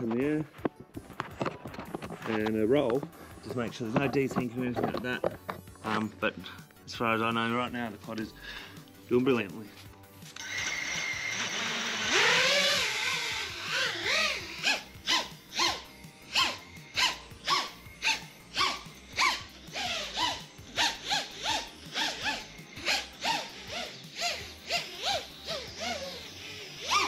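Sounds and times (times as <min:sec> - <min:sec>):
quadcopter motors revving: 0:10.4 - 0:27.0.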